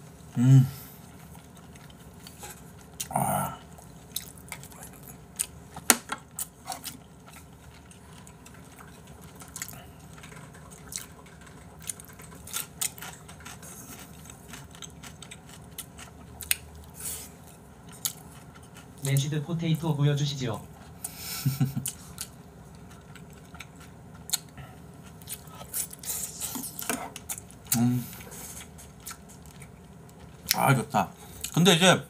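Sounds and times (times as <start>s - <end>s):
low vocal sounds: 0.3s - 0.9s, 3.0s - 3.7s
chewing and lip-smacking: 1.0s - 19.2s, 20.7s - 30.6s.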